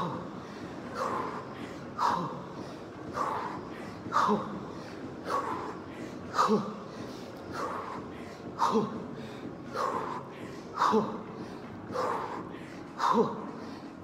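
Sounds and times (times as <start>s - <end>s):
man breathing hard: 0.0s - 14.0s.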